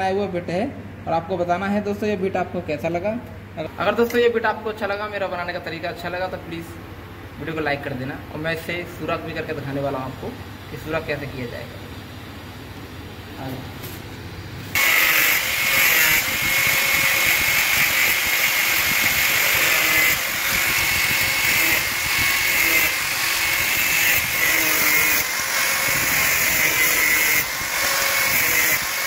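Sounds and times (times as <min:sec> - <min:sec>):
angle grinder cutting metal: 0:14.8 - 0:29.0.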